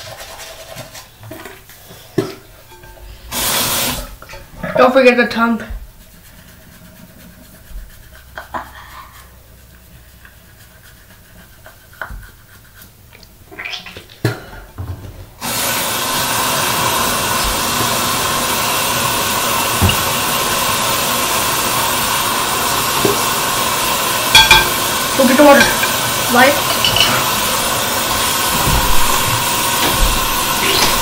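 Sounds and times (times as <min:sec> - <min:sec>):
tap water running into sink: 0:03.3 - 0:05.0, 0:14.8 - 0:31.0
toothbrushing rubs and clicks: 0:06.0 - 0:13.4.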